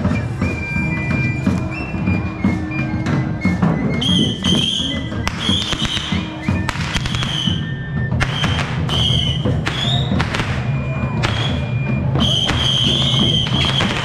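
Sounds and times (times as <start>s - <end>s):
festive procession music: 0.0s - 14.0s
firecrackers banging: 4.0s - 14.0s.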